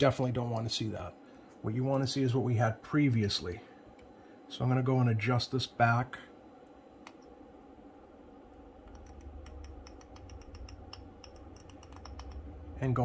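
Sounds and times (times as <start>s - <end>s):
low rumble: 8.5s - 13.0s
small clicks and scratches: 8.8s - 12.5s.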